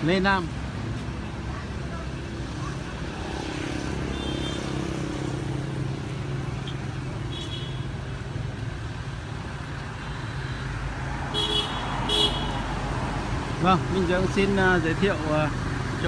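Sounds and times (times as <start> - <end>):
car horn toot: 7.3 - 7.9, 11.3 - 12.6.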